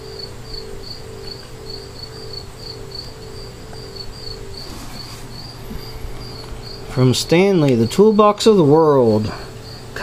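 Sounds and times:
cricket chirping: 0.0s - 10.0s.

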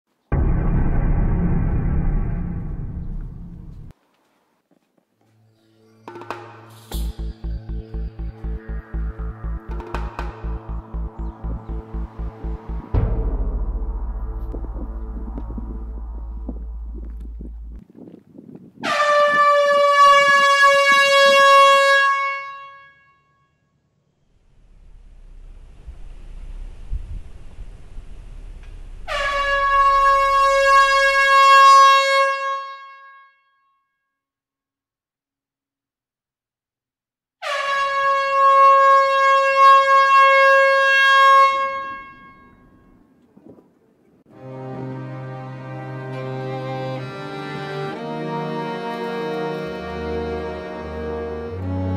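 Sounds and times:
soft low thuds in a beat: 7.0s - 18.7s
train air horn blast: 18.8s - 23.2s, 29.0s - 33.2s, 37.4s - 42.9s
loud held note rich in overtones: 29.0s - 31.6s.

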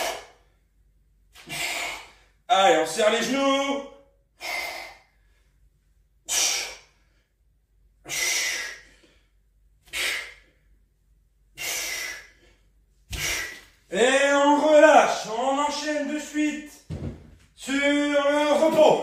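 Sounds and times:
man breathing hard: 0.0s - 0.7s, 1.4s - 2.5s, 4.3s - 10.8s, 11.5s - 13.8s.

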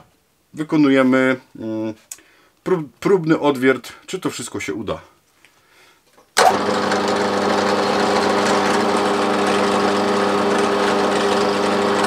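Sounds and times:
drill press motor hum: 6.4s - 12.0s.

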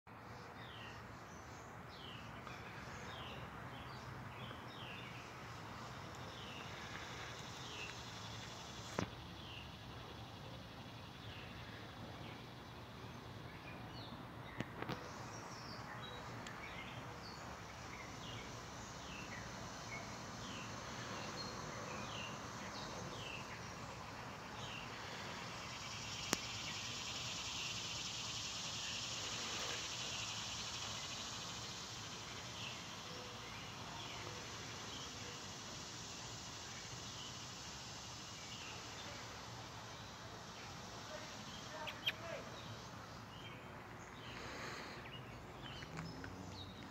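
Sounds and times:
insect drone: 0.3s - 46.7s
bird chirps: 40.6s - 46.9s.

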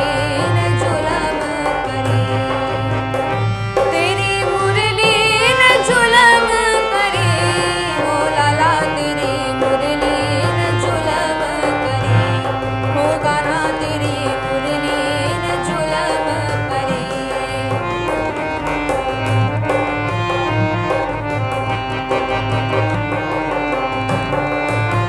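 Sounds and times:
woman singing: 0.0s - 3.2s, 3.8s - 18.2s
dholak drum beat: 0.0s - 25.0s
harmonium: 0.0s - 25.0s.

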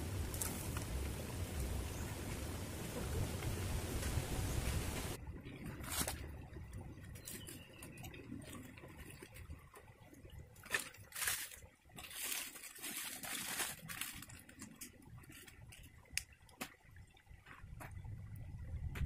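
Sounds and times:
dry leaves rustling: 0.0s - 5.2s, 10.7s - 14.8s
stream trickling: 0.0s - 18.8s.

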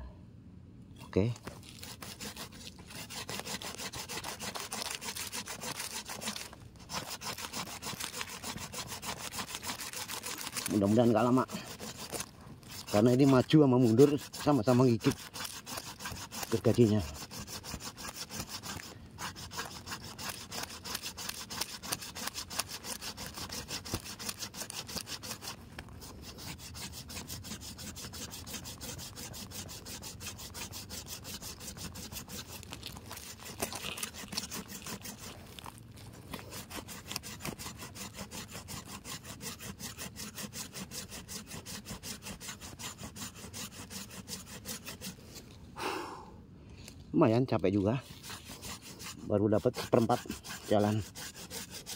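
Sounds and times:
saw cutting through root: 1.2s - 45.6s, 47.2s - 51.9s.

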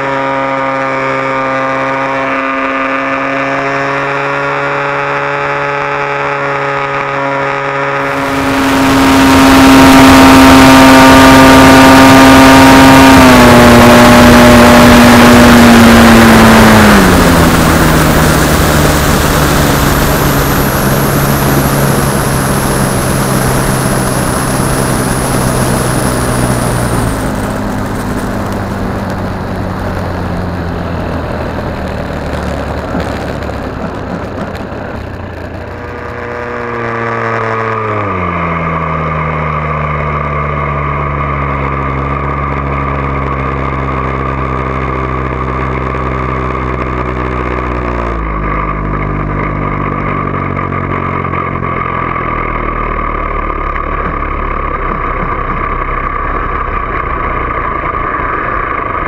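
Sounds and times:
model airplane engine running: 0.0s - 59.0s
rushing air: 8.0s - 37.9s.

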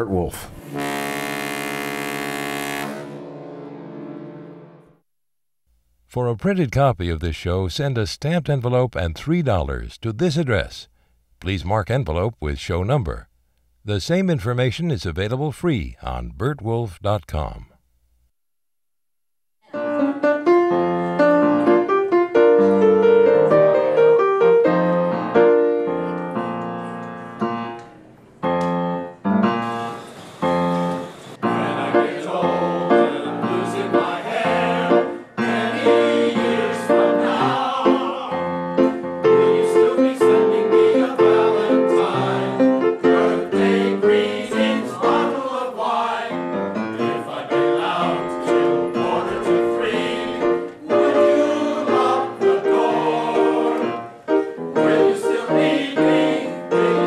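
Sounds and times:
piano playing chords: 0.6s - 5.0s, 19.7s - 27.8s, 28.4s - 45.4s, 46.3s - 57.0s
choir singing: 31.3s - 57.0s.

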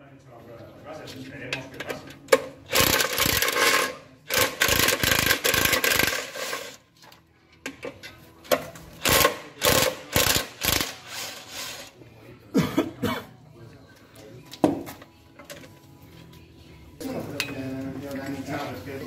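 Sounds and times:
impact driver hammering: 9.0s - 11.0s.

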